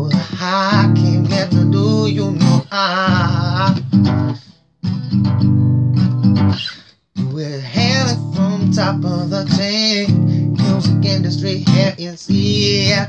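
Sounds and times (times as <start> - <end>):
man singing wordlessly: 0.0 - 4.4, 7.2 - 13.0
acoustic guitar strumming: 0.0 - 13.0.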